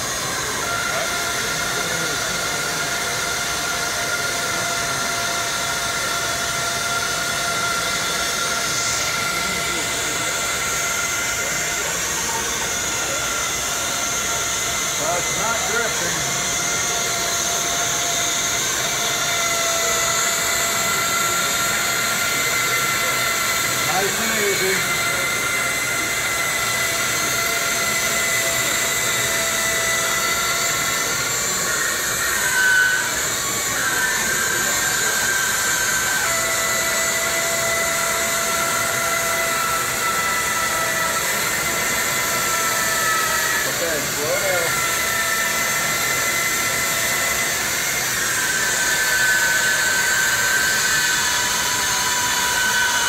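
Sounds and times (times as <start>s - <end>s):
bandsaw cutting wood: 0.0s - 53.0s.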